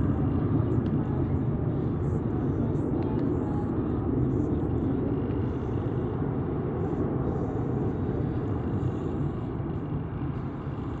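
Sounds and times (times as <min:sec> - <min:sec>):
jet aircraft rumble: 0:00.0 - 0:11.0.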